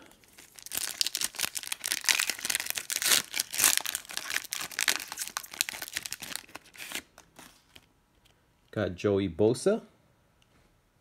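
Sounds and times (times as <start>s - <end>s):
foil wrapper tearing and crinkling: 0.3s - 7.9s.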